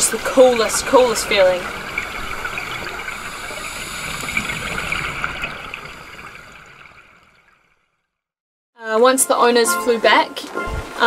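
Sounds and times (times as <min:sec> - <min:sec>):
underwater rushing water: 0:00.0 - 0:08.0.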